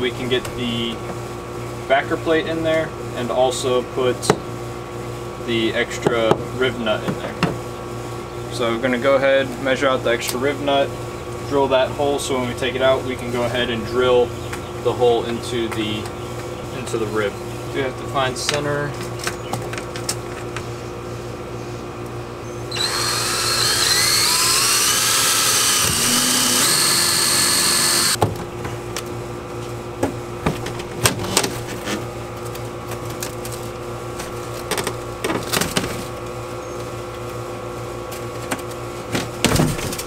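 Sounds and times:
cordless drill whining: 22.7 - 28.2.

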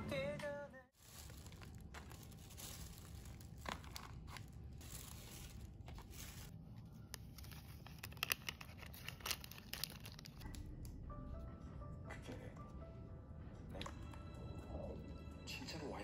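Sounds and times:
paper bag rustling and crinkling: 0.9 - 10.4.

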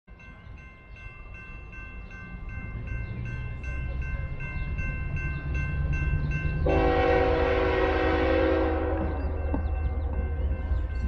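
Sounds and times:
train rumble: 0.1 - 11.0
locomotive air horn blast: 6.7 - 9.2.

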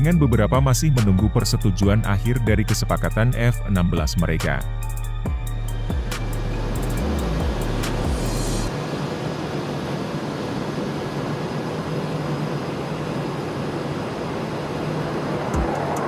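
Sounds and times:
fighter jet engine roar: 5.7 - 16.0.

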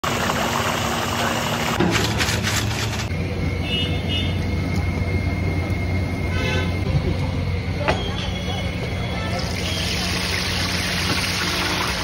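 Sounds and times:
street traffic rumble: 0.0 - 12.0
oil sizzling in wok: 9.3 - 12.0.

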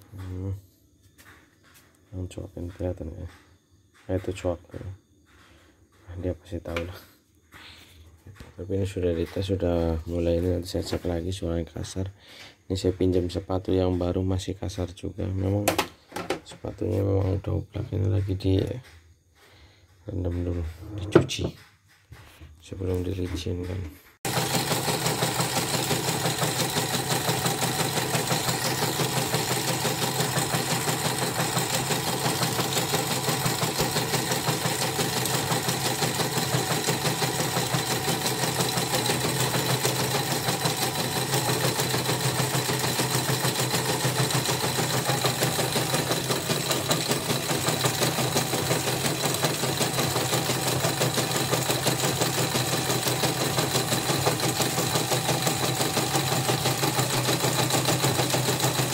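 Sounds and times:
embroidery machine stitching: 24.3 - 58.9.

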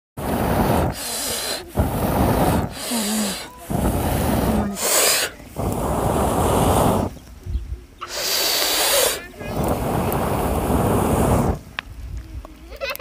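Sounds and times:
man blowing on a fire: 0.2 - 7.4, 8.0 - 11.8
gasping in-breaths: 0.3 - 7.1, 8.0 - 9.8.

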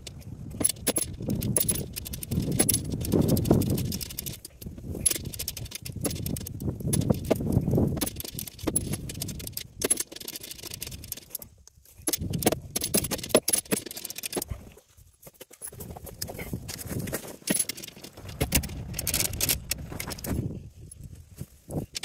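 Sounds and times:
socket ratchet clicking: 0.0 - 11.4, 12.0 - 14.4, 17.5 - 19.8
small metal parts jingling: 0.0 - 14.6, 15.4 - 21.1.

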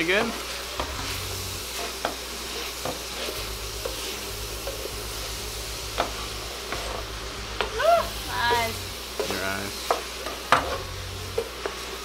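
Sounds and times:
food sizzling in grease: 0.0 - 12.0
wooden spoon stirring: 1.6 - 5.2, 6.0 - 7.0.

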